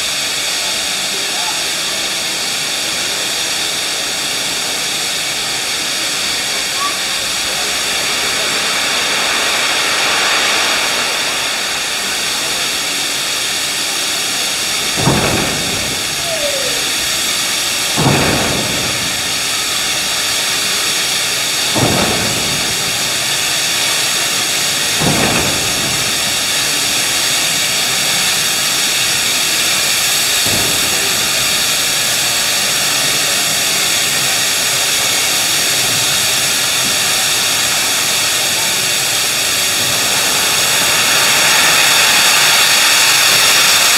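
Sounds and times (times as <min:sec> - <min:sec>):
steam locomotive hissing: 0:00.0 - 0:43.9
heavy thumps: 0:14.8 - 0:21.0.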